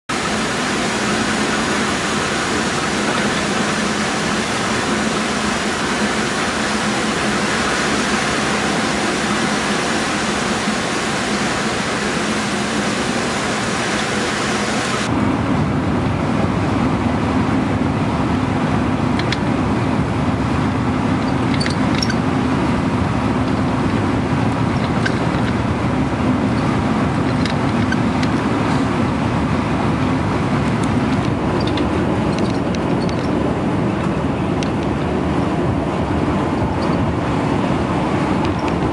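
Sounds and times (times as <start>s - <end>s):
rain and wet tyres hissing: 0.1s - 15.1s
bus engine rumble: 0.1s - 38.9s.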